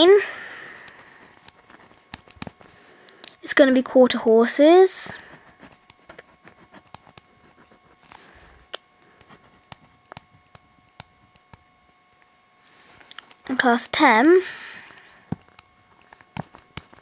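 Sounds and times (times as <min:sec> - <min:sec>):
pen scratching on paper: 0:05.2 - 0:08.1.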